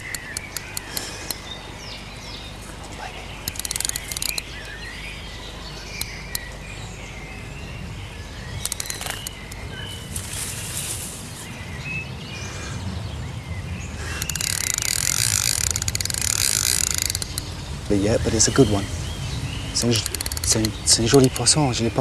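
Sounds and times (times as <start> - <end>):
fishing reel drag clicking: 3.5 - 4.5, 8.6 - 9.6, 14.2 - 17.6, 19.8 - 21.4.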